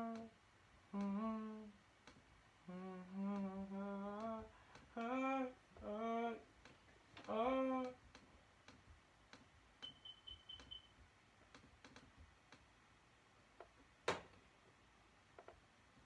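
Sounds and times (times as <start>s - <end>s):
person humming a melody: 0.0s - 1.8s, 2.6s - 6.5s, 7.2s - 8.0s
faint clicks: 0.0s - 5.2s, 6.6s - 10.8s, 11.4s - 12.7s.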